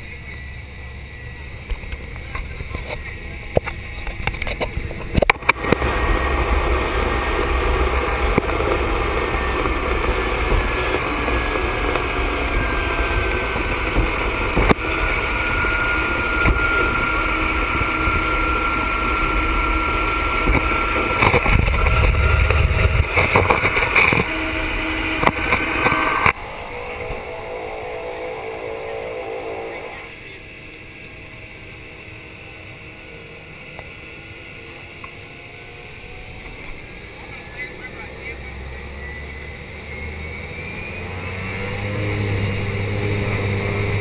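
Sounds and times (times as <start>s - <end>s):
turboprop engine rumble and whine: 0.0s - 44.0s.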